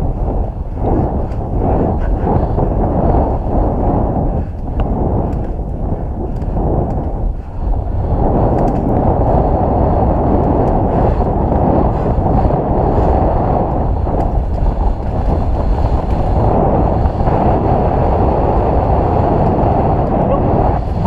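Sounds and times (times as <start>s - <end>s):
mountain bike rumble: 0.0s - 21.0s
wind rush on microphone: 0.0s - 21.0s
faint clicks and rattles: 8.5s - 9.4s.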